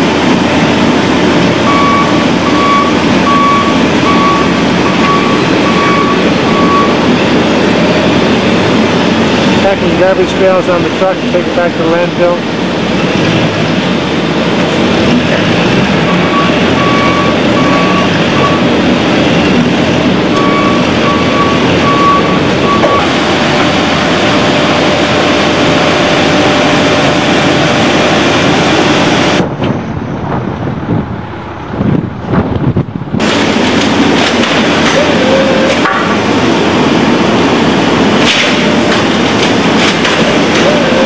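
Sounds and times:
loud industrial machinery: 0:00.0 - 0:41.0
vehicle noise: 0:00.0 - 0:41.0
wind: 0:00.0 - 0:41.0
forklift reversing alarm beeps: 0:01.4 - 0:09.2, 0:16.0 - 0:18.8, 0:20.3 - 0:29.4.

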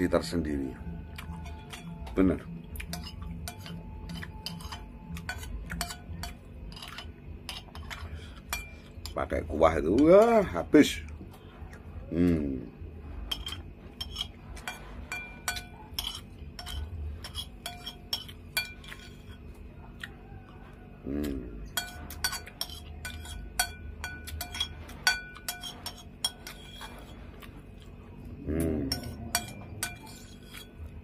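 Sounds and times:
metal spoon clinking on ceramic plate: 0:02.8 - 0:09.2, 0:13.3 - 0:19.4, 0:21.7 - 0:26.9, 0:28.9 - 0:30.8.

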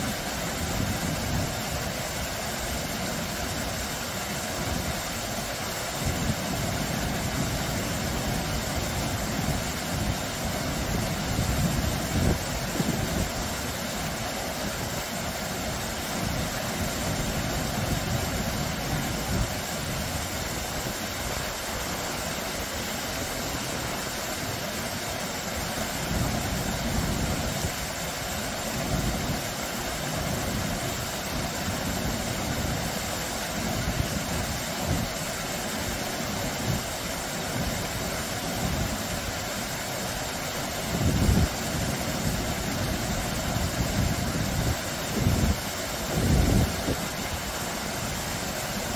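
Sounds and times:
waterfall pouring over rocks: 0:00.0 - 0:48.9
wind buffeting microphone: 0:40.8 - 0:47.5.

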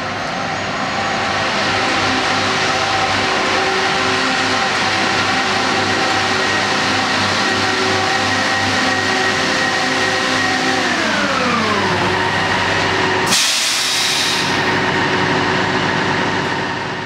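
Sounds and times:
diesel power units whining: 0:00.0 - 0:17.0
hiss of released air: 0:13.3 - 0:14.6.

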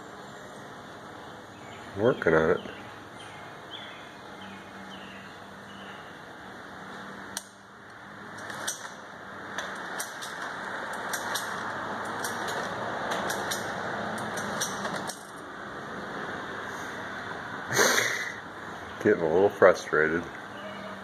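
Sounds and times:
lawn mower pull-start rushing: 0:09.6 - 0:15.4.

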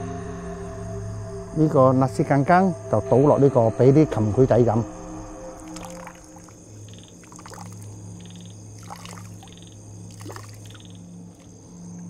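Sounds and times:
liquid trickling into water: 0:05.6 - 0:11.7
faint drips and splashes: 0:05.6 - 0:12.0.

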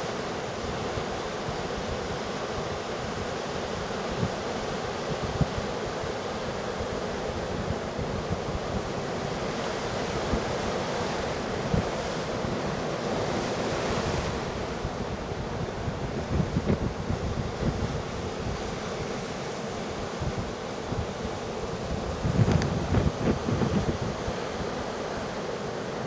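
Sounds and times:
wind gusting on microphone: 0:11.3 - 0:19.2, 0:20.0 - 0:25.3.

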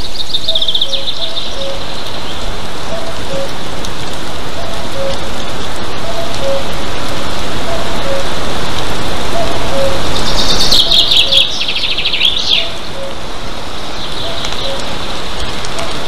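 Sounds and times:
rapid high falling bird calls: 0:00.0 - 0:03.6, 0:09.3 - 0:16.0
rain hiss on microphone: 0:00.0 - 0:16.0.

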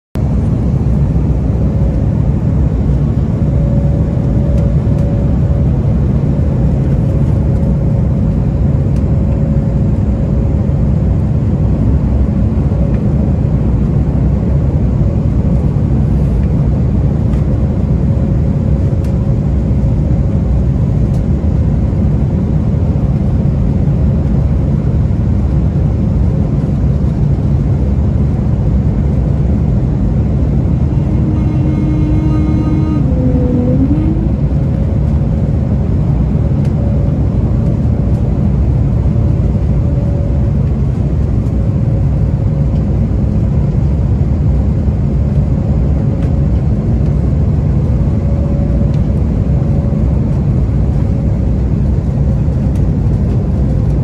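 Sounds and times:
jet cabin engine rumble: 0:00.2 - 0:54.0
faint steady hum: 0:26.7 - 0:42.1.

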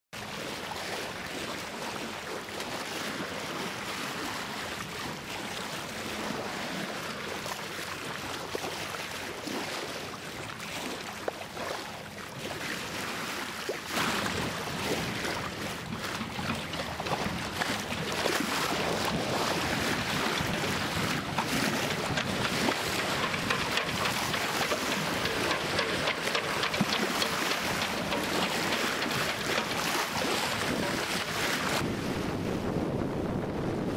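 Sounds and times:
choppy sea water: 0:00.2 - 0:33.9
wind buffeting microphone: 0:14.1 - 0:33.9.

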